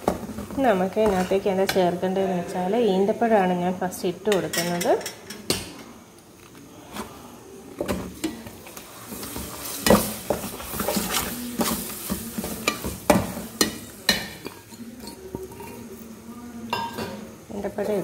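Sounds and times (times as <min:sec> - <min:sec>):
paste sizzling in oil: 0:07.9 - 0:16.8
metal spoon scraping a pot: 0:09.1 - 0:16.1.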